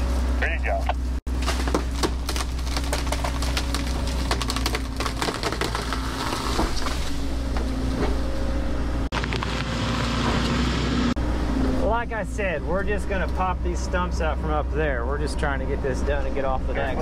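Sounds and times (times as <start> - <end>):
excavator diesel engine hum: 0.0 - 17.0
wood cracking and splintering: 1.3 - 8.4, 9.1 - 10.6.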